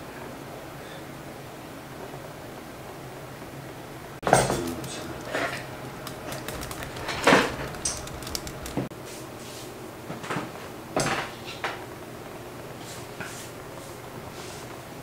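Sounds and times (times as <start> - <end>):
household knocks and clatters: 4.2 - 8.9.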